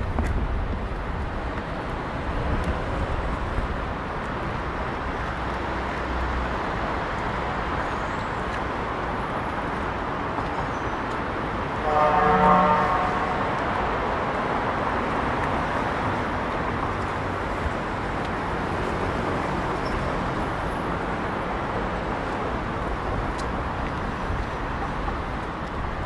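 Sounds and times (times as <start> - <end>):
traffic noise: 0.0 - 26.0
vehicle horn toot: 11.8 - 13.4.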